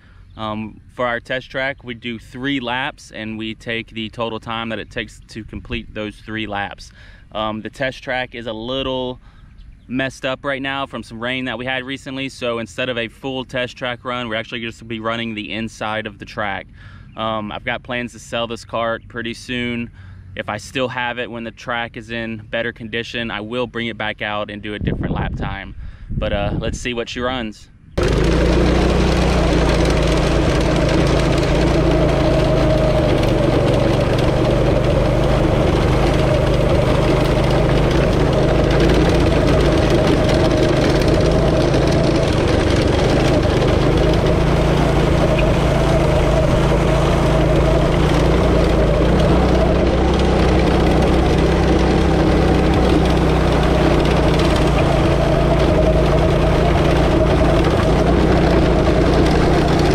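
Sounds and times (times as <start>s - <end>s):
go-kart engine running: 28.0s - 59.9s.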